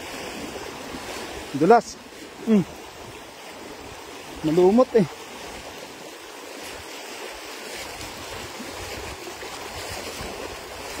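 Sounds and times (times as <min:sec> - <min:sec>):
shallow water rushing: 0:00.0 - 0:11.0
splashing of wading: 0:00.0 - 0:11.0.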